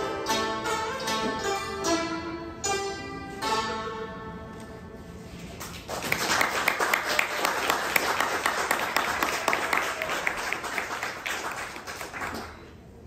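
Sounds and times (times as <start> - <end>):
audience applause: 5.8 - 12.7.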